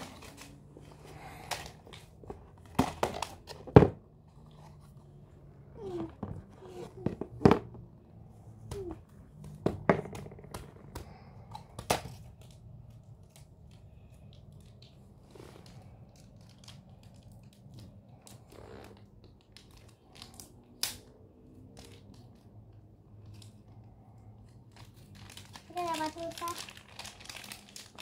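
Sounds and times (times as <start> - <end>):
soft handling noises: 0.0 - 9.6
plastic toys clicking and knocking: 24.6 - 28.0.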